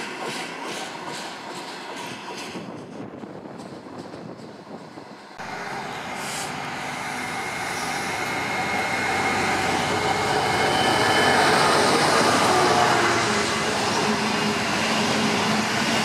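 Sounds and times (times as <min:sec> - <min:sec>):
diesel locomotive engine: 0:00.0 - 0:16.0
freight train rumble: 0:00.0 - 0:16.0
high whine: 0:05.4 - 0:16.0.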